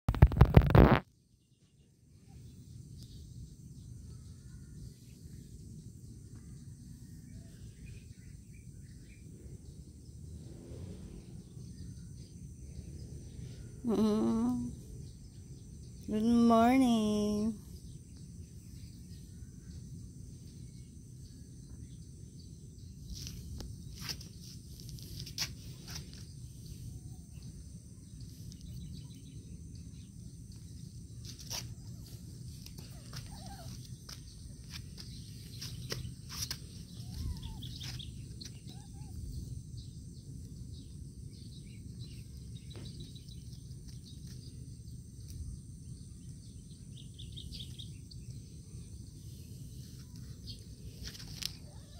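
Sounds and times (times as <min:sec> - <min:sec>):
faint bird chirps: 0:00.5 - 0:10.5, 0:25.8 - 0:51.9
low rumble: 0:08.4 - 0:16.1.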